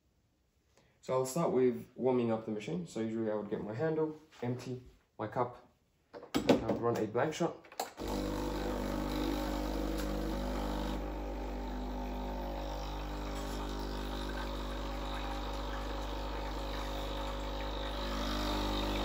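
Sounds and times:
espresso machine pump buzzing: 8.0s - 19.0s.

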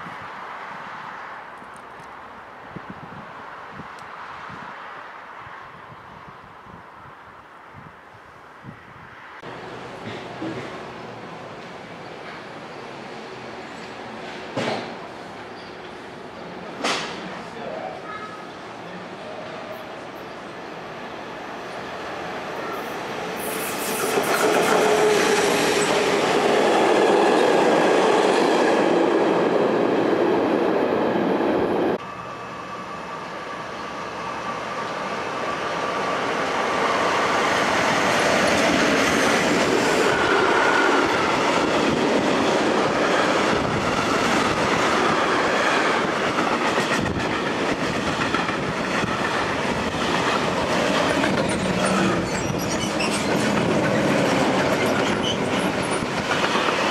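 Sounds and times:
freight train rolling past: 8.7s - 56.9s
thin wheel squeal: 51.8s - 53.4s.

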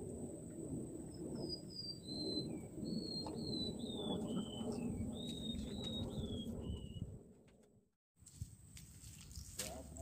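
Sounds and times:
bird whistling: 1.4s - 7.0s.

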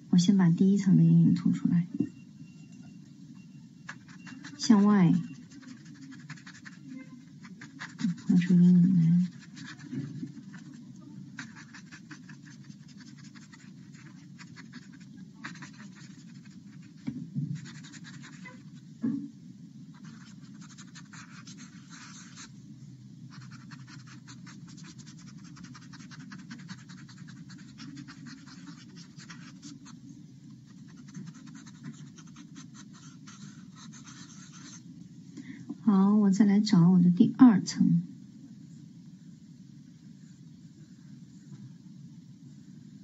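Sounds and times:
blending stump rubbing paper: 3.9s - 18.8s, 20.0s - 22.5s, 23.3s - 30.0s, 30.6s - 34.8s.

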